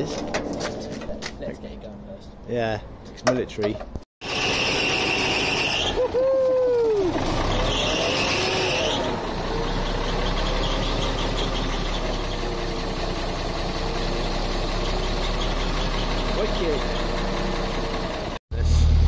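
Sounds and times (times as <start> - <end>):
high squeal: 4.2 - 12.5
diesel engine starter whine: 4.2 - 19.0
diesel engine idling: 4.9 - 19.0.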